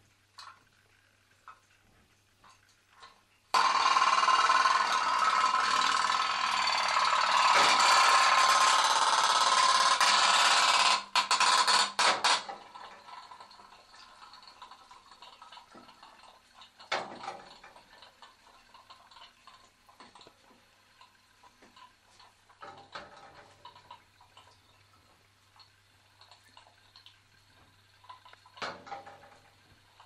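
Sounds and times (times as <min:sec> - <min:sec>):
small water noises: 0:00.0 - 0:06.2, 0:12.3 - 0:30.0
toy steam boat engine putting: 0:03.5 - 0:13.4.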